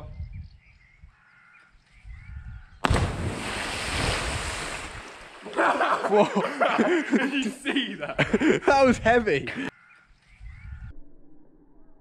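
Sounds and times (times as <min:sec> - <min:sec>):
person splashing into water: 0:02.8 - 0:06.2.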